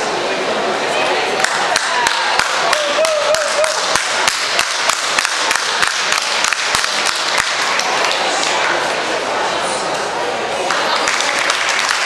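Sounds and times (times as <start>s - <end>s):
crowd hubbub: 0.0s - 12.0s
spectators clapping: 1.4s - 8.9s, 10.6s - 12.0s.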